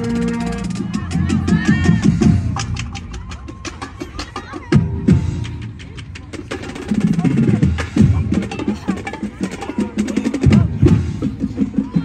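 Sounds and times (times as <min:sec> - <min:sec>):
low brass notes: 0:00.0 - 0:01.1
marching band playing: 0:00.0 - 0:12.0.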